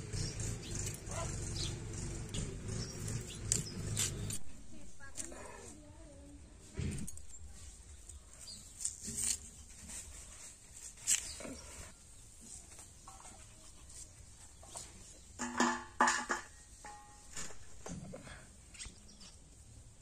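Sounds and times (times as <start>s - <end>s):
pieces dropping into steel plate: 15.4s - 17.7s.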